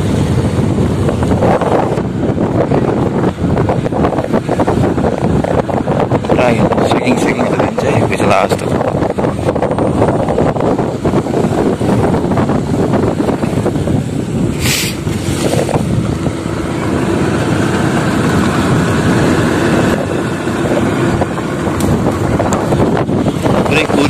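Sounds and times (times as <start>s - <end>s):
motorcycle engine running: 0.0s - 24.0s
wind and road noise: 0.0s - 24.0s
brief hiss: 14.6s - 15.5s.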